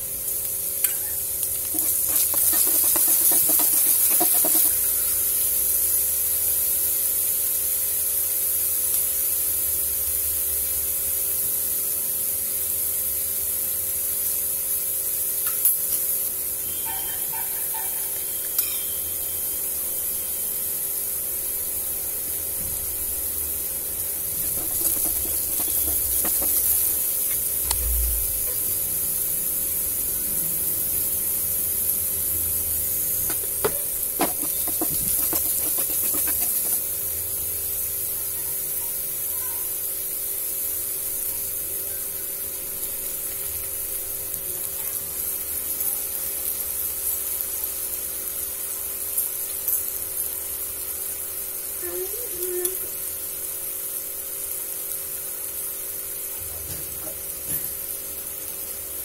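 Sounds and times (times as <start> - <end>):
onions sizzling in oil: 0.0 - 59.0
spatula scraping and tapping pan: 0.8 - 4.9, 24.3 - 27.5, 33.2 - 37.0.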